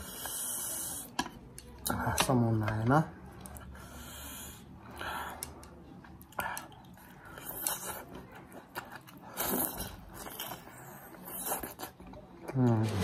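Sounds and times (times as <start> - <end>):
chewing: 4.9 - 12.8
biting into chilli: 6.3 - 12.3
slurping noodles: 9.2 - 12.0.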